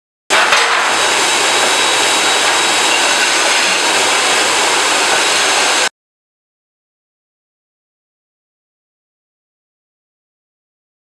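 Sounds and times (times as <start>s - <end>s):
machine running with rushing noise: 0.3s - 5.9s
faint high whine: 1.1s - 5.9s.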